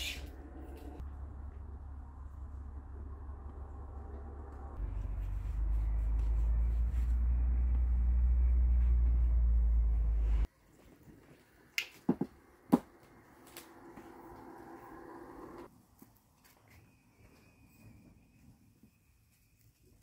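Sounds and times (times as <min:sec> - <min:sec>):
low steady rumble: 0:00.0 - 0:10.5, 0:13.1 - 0:15.7.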